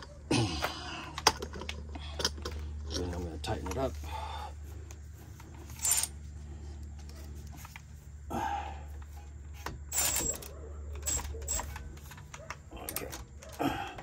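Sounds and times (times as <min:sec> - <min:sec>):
ratchet and wrench clicking: 0:05.6 - 0:06.1, 0:09.6 - 0:13.2.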